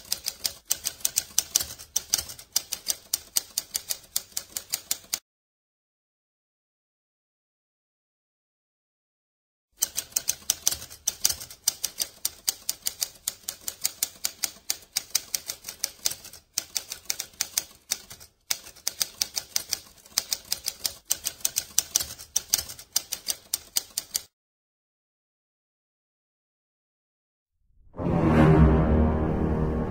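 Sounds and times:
typewriter keys clacking: 0.0 - 5.2, 9.8 - 24.3.

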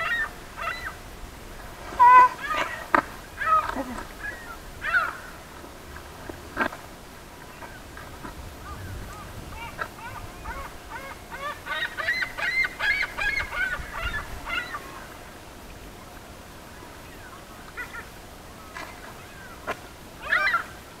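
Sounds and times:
waterbirds calling: 0.0 - 21.0
faint low rumble: 0.4 - 11.6.

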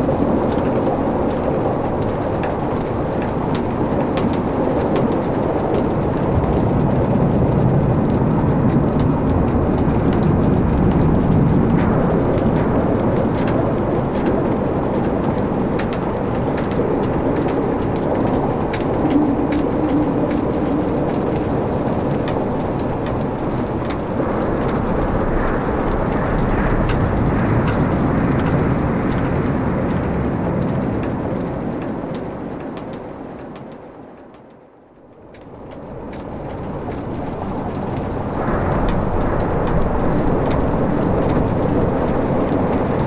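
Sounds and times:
log fire crackling: 0.0 - 33.9, 35.2 - 43.0.

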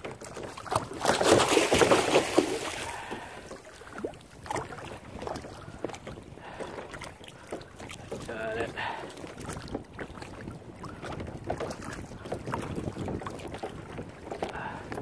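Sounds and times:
fish splashing in water: 0.6 - 10.3.

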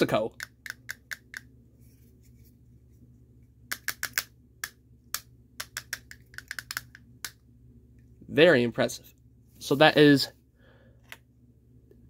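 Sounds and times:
plastic castanets clacking: 0.3 - 1.5, 3.7 - 7.4.

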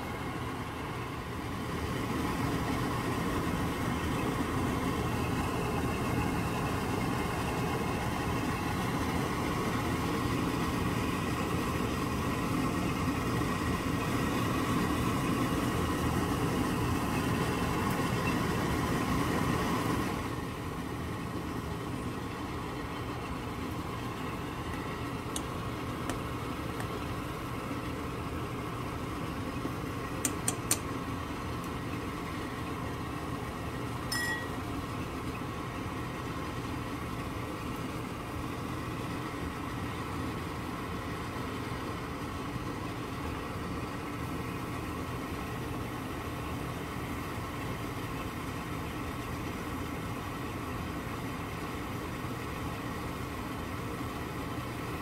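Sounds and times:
pot boiling and bubbling: 0.0 - 55.0
small sharp clicks: 30.2 - 30.9.

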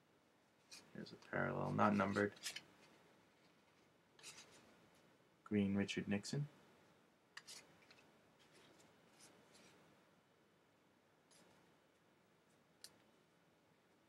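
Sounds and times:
trading cards rustling: 1.5 - 4.6.

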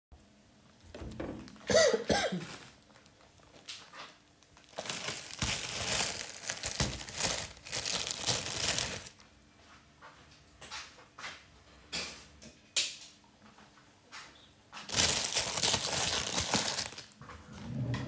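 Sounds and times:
plastic bag crinkling: 1.4 - 9.2, 14.9 - 17.2.

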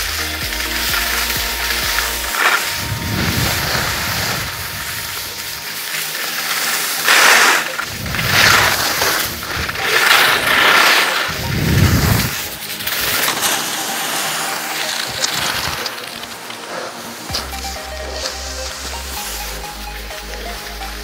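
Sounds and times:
skis scraping over snow: 0.0 - 21.0
wind rumble on microphone: 2.8 - 5.2, 7.9 - 9.8, 11.3 - 12.5.

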